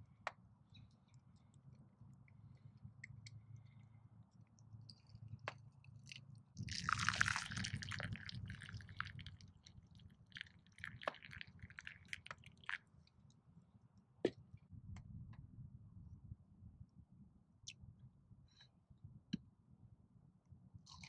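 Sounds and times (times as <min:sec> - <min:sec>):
drips: 0:06.1 - 0:12.8
liquid pouring into cup: 0:06.1 - 0:12.8.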